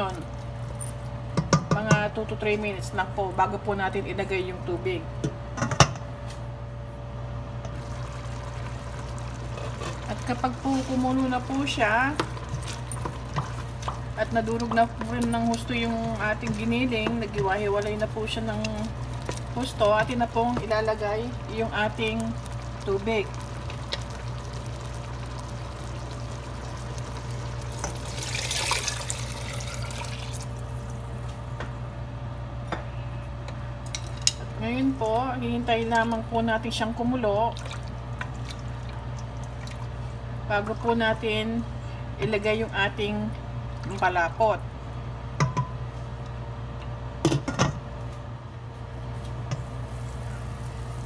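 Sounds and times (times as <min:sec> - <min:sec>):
steady low hum: 0:00.0 - 0:51.0
water pouring into a pot: 0:07.8 - 0:14.3, 0:21.2 - 0:31.0, 0:37.5 - 0:40.0.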